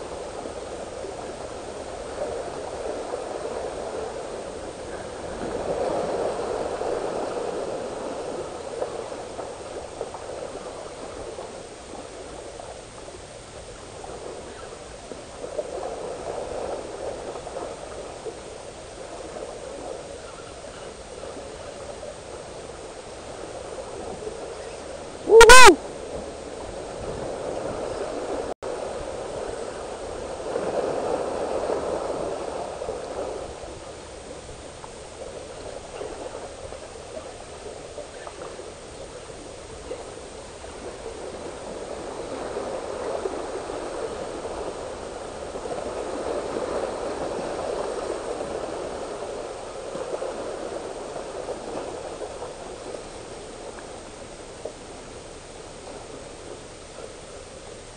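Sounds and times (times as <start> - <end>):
sea water rushing over rocks: 0.0 - 57.9
loud hooting call: 25.3 - 25.8.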